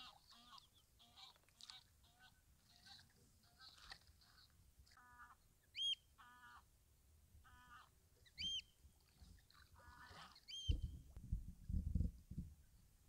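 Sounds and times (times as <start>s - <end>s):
bird high-pitched calls: 5.0s - 6.6s, 7.5s - 8.8s, 9.8s - 11.0s.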